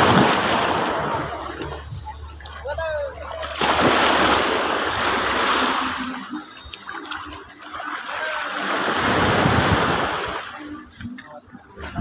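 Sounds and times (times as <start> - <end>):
surf washing up beach: 0.0 - 12.0.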